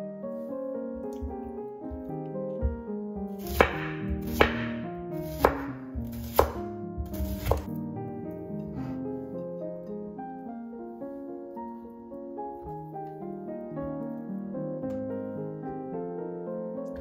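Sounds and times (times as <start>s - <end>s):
piano music: 0.0s - 17.0s
knife knocking on cutting board: 3.5s - 4.7s, 5.4s - 7.7s.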